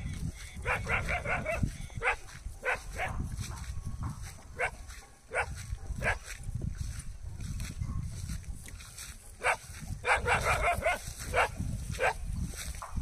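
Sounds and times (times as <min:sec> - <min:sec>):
dogs barking: 0:00.6 - 0:07.0, 0:08.9 - 0:12.4.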